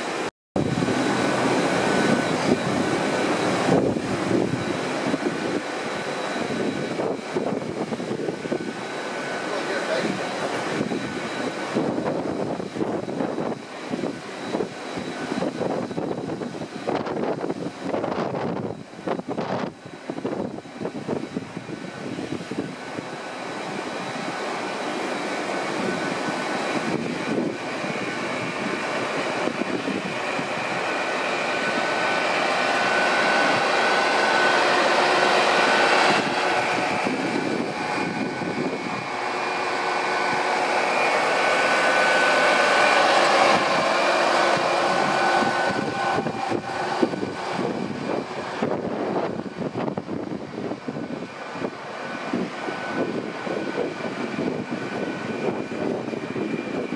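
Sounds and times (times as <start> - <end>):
train diesel engine drone: 0.0 - 56.9
train wheels rumbling: 22.7 - 56.8.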